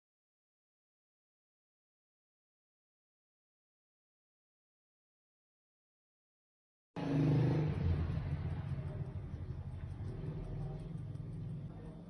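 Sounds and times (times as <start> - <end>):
low rumbling hum: 7.7 - 12.0.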